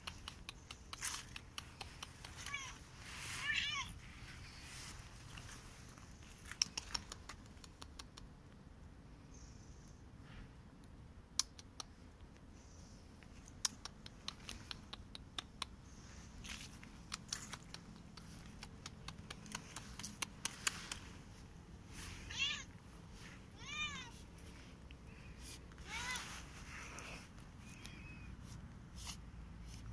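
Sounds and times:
cat meowing: 2.3s - 4.0s, 22.2s - 22.8s, 23.4s - 24.3s, 25.8s - 26.4s.

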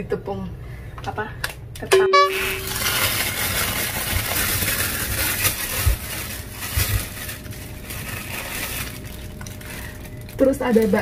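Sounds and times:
plastic bag rustling: 2.3s - 11.0s.

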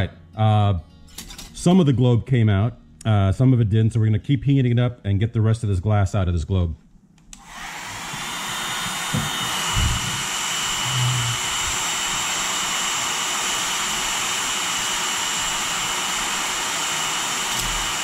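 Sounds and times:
hot-air blower rushing: 7.3s - 18.0s.

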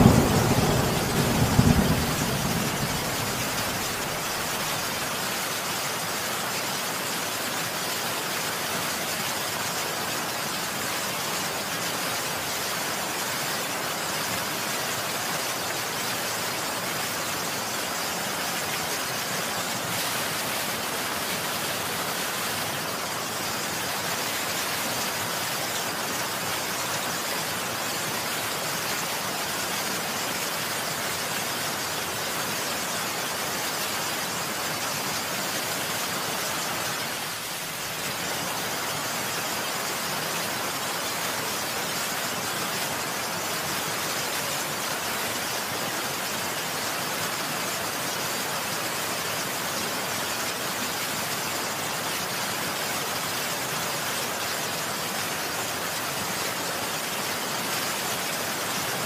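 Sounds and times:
heavy rain falling: 0.0s - 59.0s.

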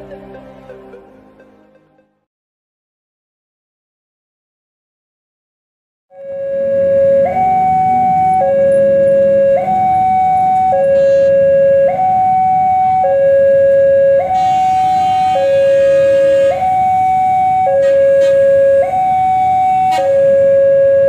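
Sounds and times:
two-tone level crossing alarm: 6.1s - 21.0s.

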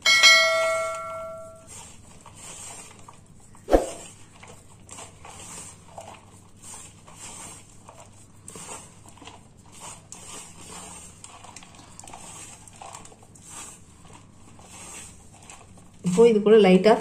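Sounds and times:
steel mixing bowl ringing: 0.0s - 1.7s
fingers scraping powder in bowl: 0.5s - 17.0s.

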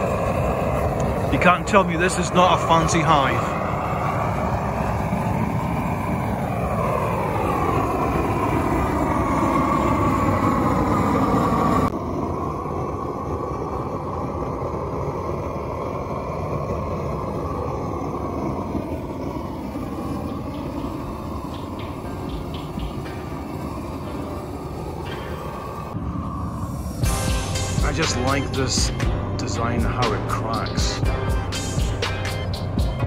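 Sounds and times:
torch flame blasting: 0.0s - 33.0s.

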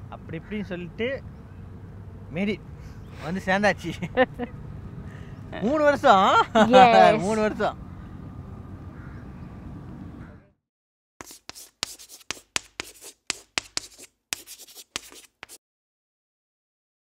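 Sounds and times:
scratchy brush strokes: 11.2s - 15.6s.

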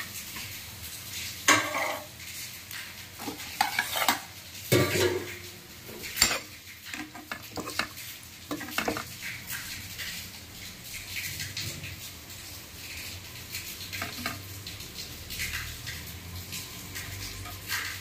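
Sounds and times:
faint sizzle of oily gravy: 0.0s - 18.0s
spoon scraping and clinking in pan: 1.5s - 2.1s, 3.2s - 5.4s, 6.0s - 9.1s.

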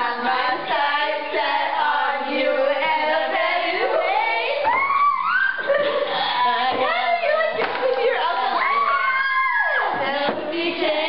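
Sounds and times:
women singing together: 0.0s - 11.0s.

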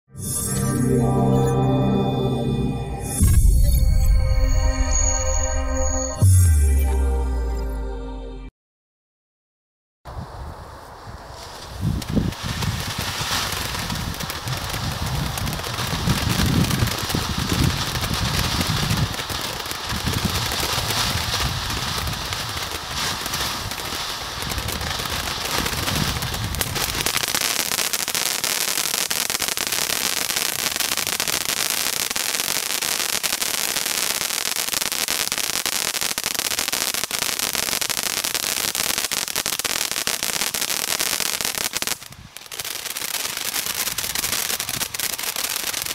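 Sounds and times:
firework fountain hissing and crackling: 10.1s - 45.9s.

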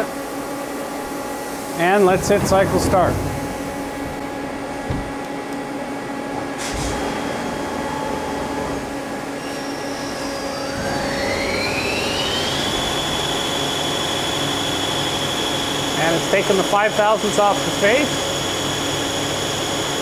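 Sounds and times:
coolant pump running: 0.0s - 20.0s
short knocks: 2.3s - 5.2s
lathe spindle whine: 7.3s - 20.0s.

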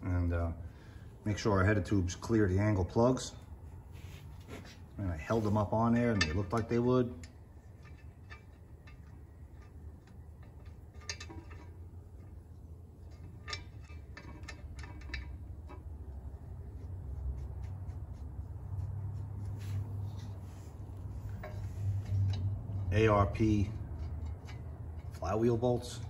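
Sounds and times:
low steady hum: 0.0s - 26.0s
metallic clicks of bolts threading: 5.8s - 16.4s, 20.0s - 26.0s.

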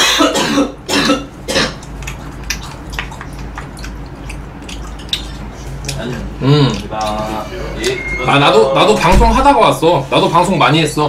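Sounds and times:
man coughing: 0.0s - 1.8s.

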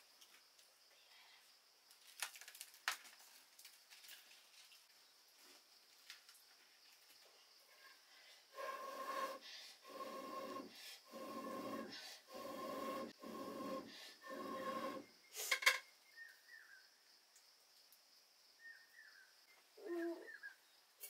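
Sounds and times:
blowing through metal blowpipe: 8.5s - 15.1s.

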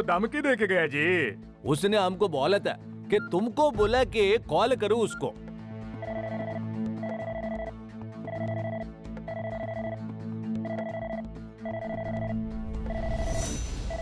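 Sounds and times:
background music: 0.0s - 14.0s
electronic phone ring tone: 6.0s - 14.0s.

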